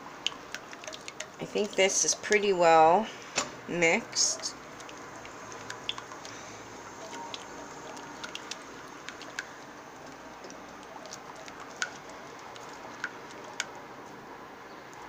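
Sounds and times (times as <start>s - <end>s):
utensil clicking against pot: 0.3s - 2.4s, 4.4s - 6.4s, 7.0s - 13.8s.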